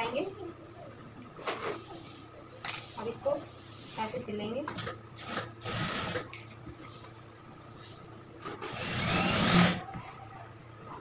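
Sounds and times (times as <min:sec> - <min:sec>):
sewing machine stitching: 0:08.7 - 0:09.8.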